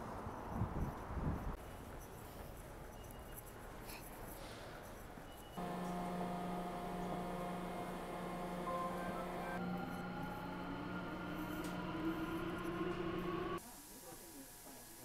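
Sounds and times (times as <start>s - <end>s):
faint station ambience: 5.3s - 13.9s
subway train electric hum: 5.6s - 15.0s.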